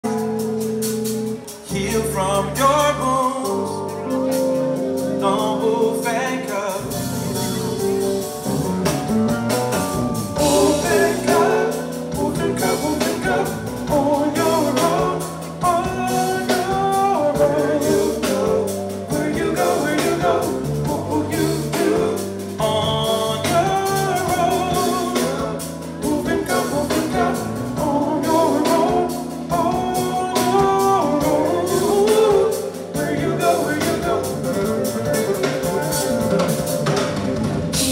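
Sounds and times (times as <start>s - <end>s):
drum kit: 0.0s - 37.9s
electric bass: 0.0s - 37.9s
keyboards: 0.0s - 37.9s
man singing: 1.5s - 8.3s, 9.8s - 37.1s.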